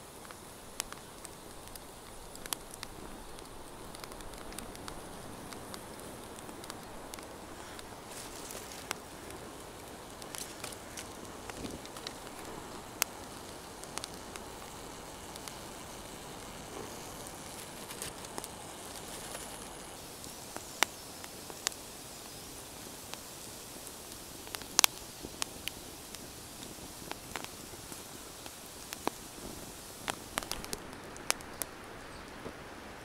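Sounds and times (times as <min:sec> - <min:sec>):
campfire crackling and popping: 0:00.0 - 0:33.0
fire hissing: 0:00.0 - 0:33.0.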